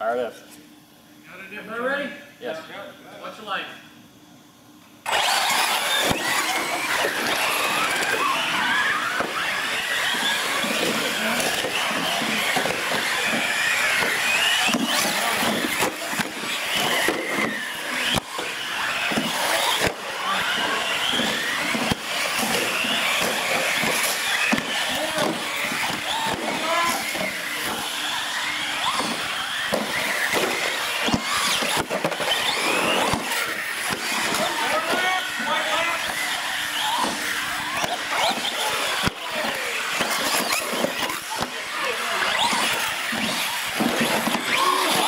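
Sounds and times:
electric motors whining: 0.5s - 45.0s
tyre noise on concrete: 5.1s - 45.0s.

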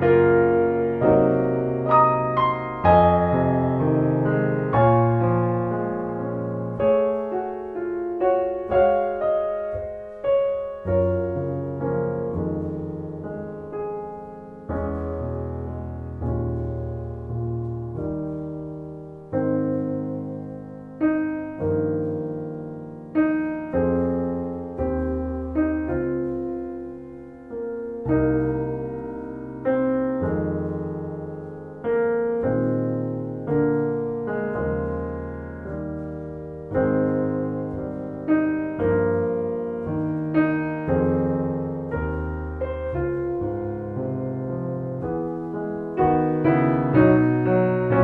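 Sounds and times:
solo piano chords: 0.0s - 48.0s.

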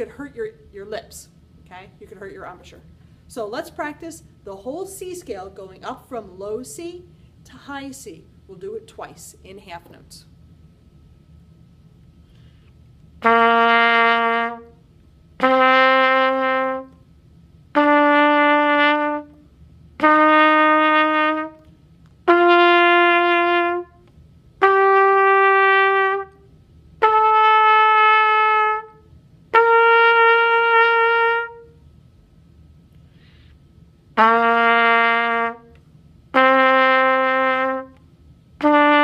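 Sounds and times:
trumpet playing ascending scale: 13.2s - 14.8s, 15.4s - 17.0s, 17.8s - 19.4s, 20.0s - 21.7s, 22.3s - 24.0s, 24.6s - 26.4s, 27.0s - 31.8s, 34.2s - 35.8s, 36.4s - 38.0s, 38.6s - 39.0s.

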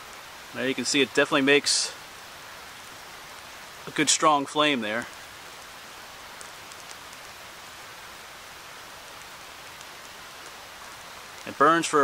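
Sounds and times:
stream running: 0.0s - 12.0s
faint ticks: 6.3s - 7.3s, 9.1s - 11.6s.

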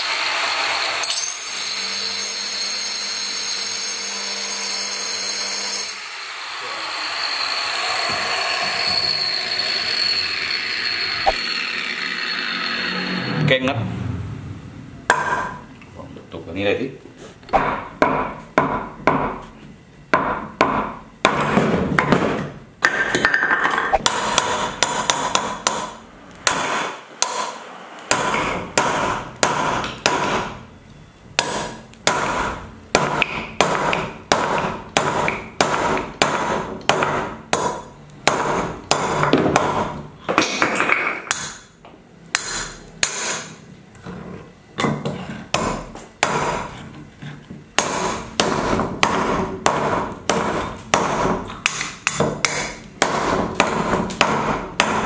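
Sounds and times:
hammer blows: 5.9s - 13.6s.

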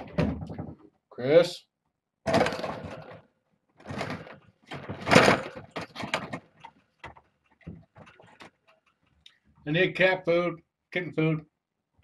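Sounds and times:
objects being moved: 0.0s - 1.0s, 2.2s - 9.7s.

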